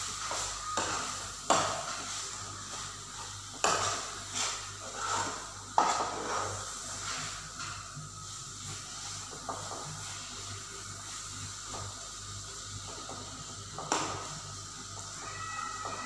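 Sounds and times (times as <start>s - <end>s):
ghee sizzling: 0.0s - 16.0s
spoon scraping a pan: 3.5s - 8.4s.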